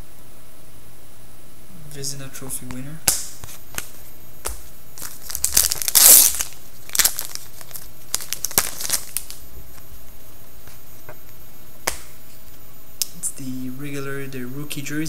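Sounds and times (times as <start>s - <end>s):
card packaging crinkling: 2.7s - 10.8s.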